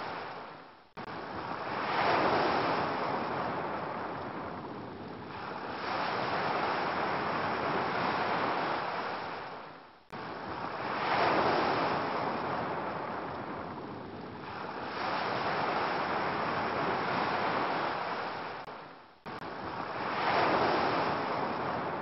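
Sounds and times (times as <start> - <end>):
ocean waves washing onto beach: 0.0 - 22.0.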